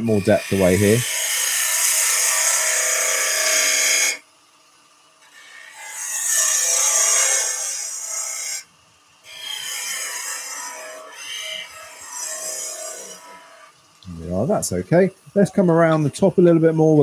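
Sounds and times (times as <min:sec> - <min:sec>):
lathe tool scraping wood: 0:09.3 - 0:13.7.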